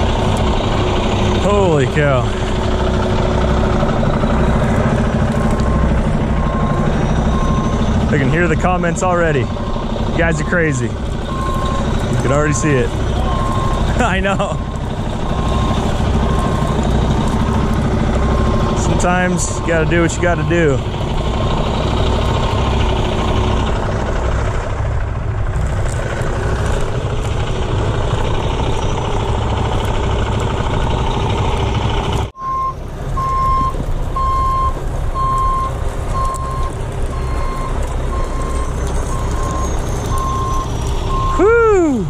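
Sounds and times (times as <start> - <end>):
diesel truck engine running: 0.0 - 42.0
backup alarm beeping: 5.7 - 16.9, 32.4 - 41.5.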